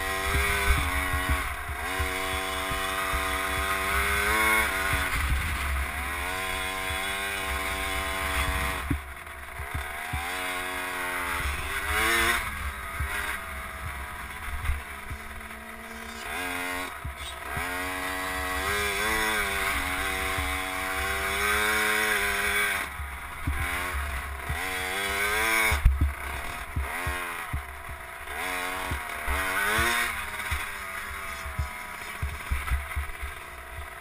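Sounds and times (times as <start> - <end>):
motorcycle engine revving: 0.0 - 34.0
thumps: 8.4 - 10.3, 25.7 - 28.1, 28.8 - 34.0.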